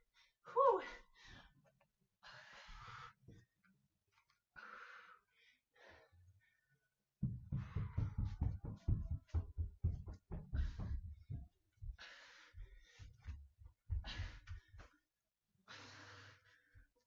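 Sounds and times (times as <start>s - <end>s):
heavy breathing: 2.2s - 3.4s, 10.3s - 14.9s, 15.7s - 17.0s
soft knocks: 7.2s - 11.6s.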